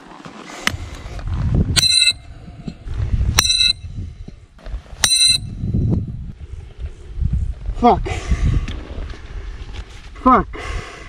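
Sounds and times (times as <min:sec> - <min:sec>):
knife blade striking brick: 0:01.8 - 0:02.2, 0:03.4 - 0:03.8, 0:05.0 - 0:05.5.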